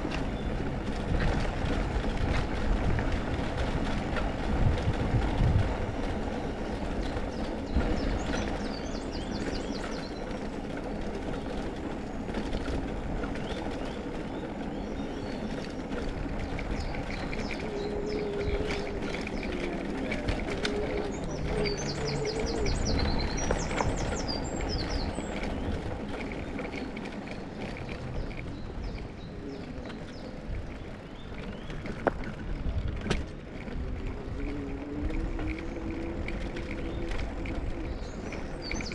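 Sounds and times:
bicycle rolling over cobblestones: 0.0 - 38.9
birdsong trills: 6.0 - 32.4, 33.7 - 38.9.

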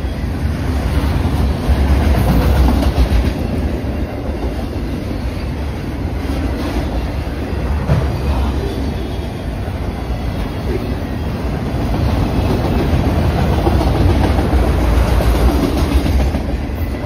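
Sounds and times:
train wheels rumbling on rail: 0.0 - 17.0
wheels clacking over rail joints: 11.8 - 17.0.

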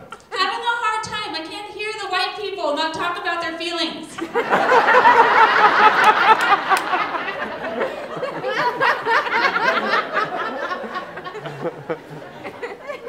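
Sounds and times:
audience laughing: 4.2 - 13.0.

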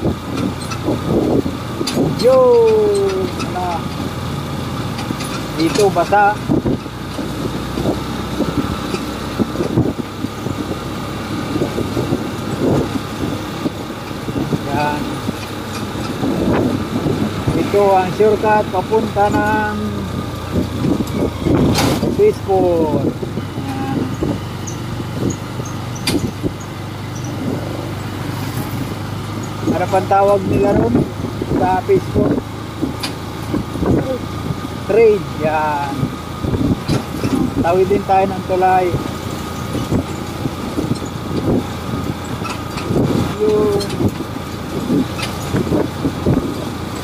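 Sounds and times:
motorcycle engine rumbling: 0.0 - 47.0
road noise: 0.0 - 47.0
tyres on wet pavement: 1.6 - 31.4
sharp click: 26.0 - 26.3.

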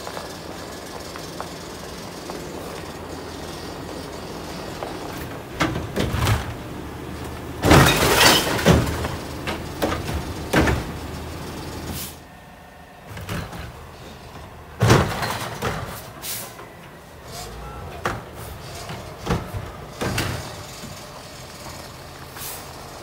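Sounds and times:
truck engine running: 0.0 - 23.0
metal clanks and bangs: 7.6 - 11.0, 14.8 - 16.2.

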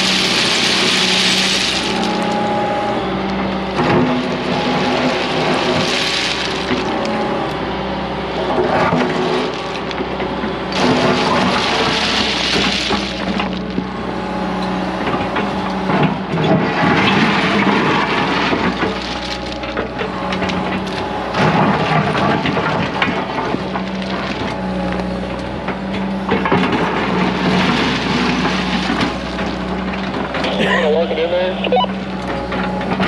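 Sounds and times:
stones clattering and grinding: 0.0 - 2.6, 3.7 - 7.6, 8.6 - 13.9, 16.7 - 25.0, 26.4 - 30.5
excavator diesel engine running: 0.0 - 33.0.

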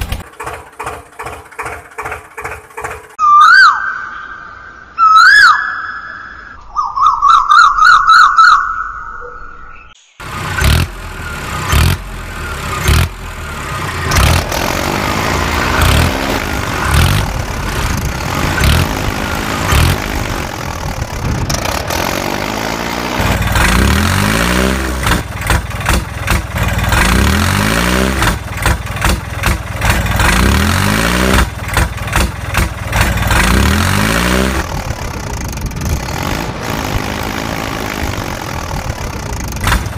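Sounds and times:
tractor engine revving: 0.0 - 3.2, 10.2 - 39.9
warbling whistle-like tone: 3.2 - 9.8.

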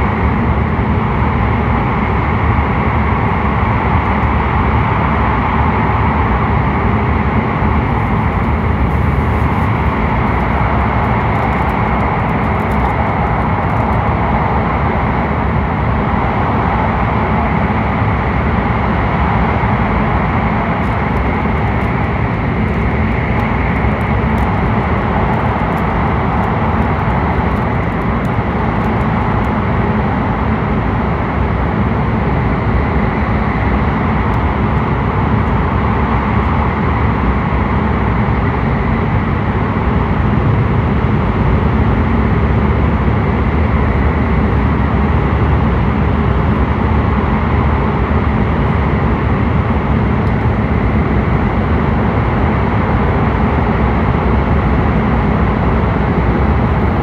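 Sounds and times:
train running through tunnel: 0.0 - 57.0.

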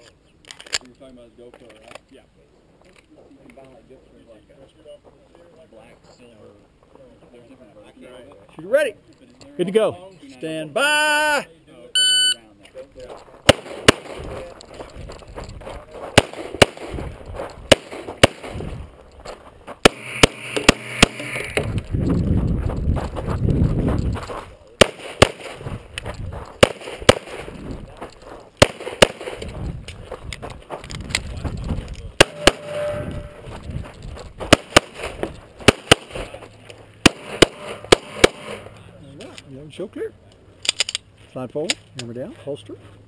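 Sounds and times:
pistol shots: 13.5 - 14.3, 16.2 - 17.0, 17.7 - 18.7, 19.8 - 21.7, 24.8 - 25.6, 26.6 - 27.6, 28.6 - 29.6, 32.2 - 33.4, 34.5 - 36.4, 37.0 - 38.7.

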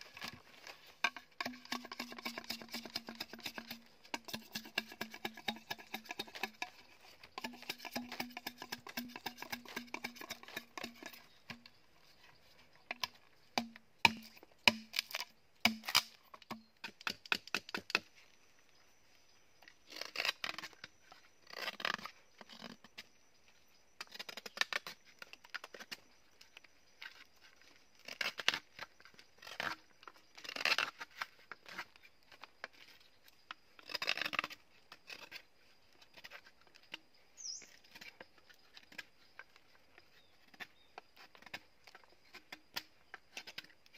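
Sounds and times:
knife scraping bamboo: 0.0 - 18.2, 19.8 - 23.1, 24.0 - 26.0, 27.0 - 33.2, 33.8 - 43.9
knife tapping and cutting bamboo: 1.0 - 11.7, 12.9 - 18.1.

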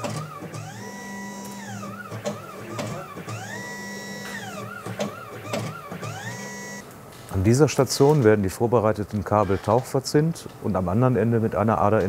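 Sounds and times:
machine motors whining: 0.0 - 6.9.

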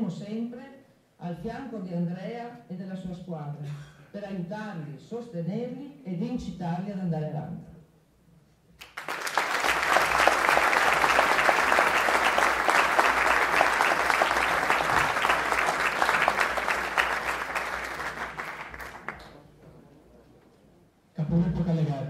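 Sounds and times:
audience applauding: 8.8 - 19.6.

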